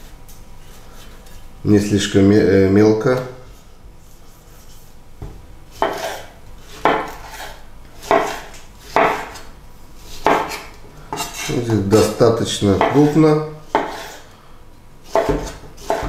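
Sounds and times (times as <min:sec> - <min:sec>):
knife slicing tomato on cutting board: 0:05.7 - 0:09.5, 0:10.1 - 0:12.2, 0:12.8 - 0:14.2, 0:15.0 - 0:16.0.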